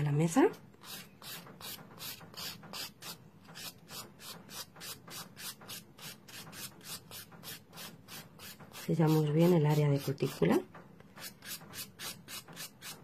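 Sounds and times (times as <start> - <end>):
nail file rubbing on nail: 0.8 - 10.5, 11.2 - 13.0.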